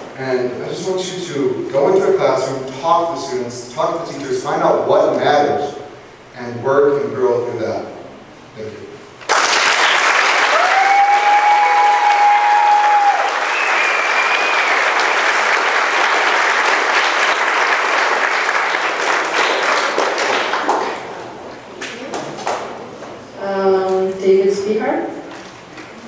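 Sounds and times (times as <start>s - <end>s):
crowd applauding: 9.3s - 22.7s
person whooping: 10.5s - 14.8s.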